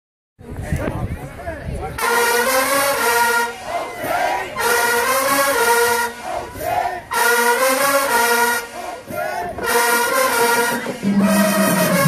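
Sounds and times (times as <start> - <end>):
voices shouting: 2.0 - 7.4, 8.4 - 11.9
marching band brass chords: 2.0 - 12.0.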